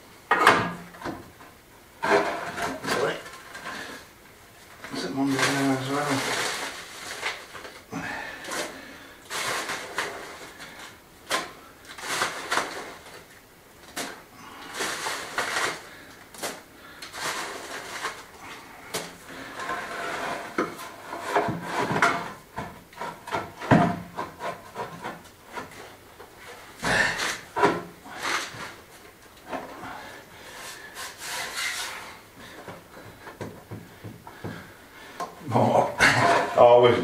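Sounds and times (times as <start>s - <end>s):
tools scraping sand and gravel: 4.9s - 7.6s, 8.6s - 10.7s, 16.5s - 18.3s.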